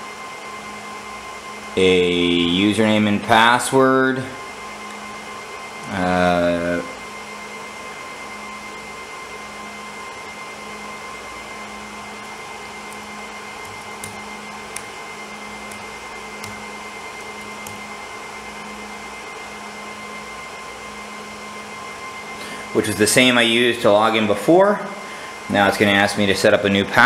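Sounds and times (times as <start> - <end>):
fan whirring: 0.0 - 27.0
keyboard keys typing: 12.9 - 14.9, 15.6 - 17.9.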